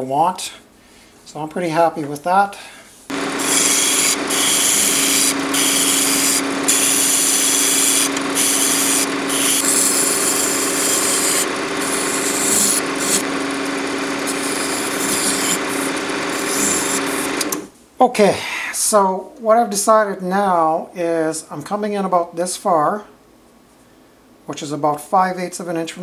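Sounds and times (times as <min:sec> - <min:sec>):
chisel shaving spinning wood: 0:03.1 - 0:17.7
wood lathe motor hum: 0:03.1 - 0:17.7.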